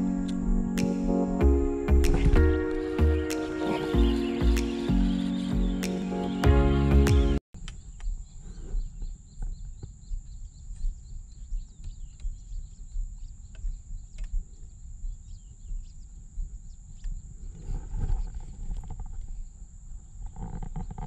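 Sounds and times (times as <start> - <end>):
music: 0.0 - 7.4
faint bird chirps: 2.3 - 18.4.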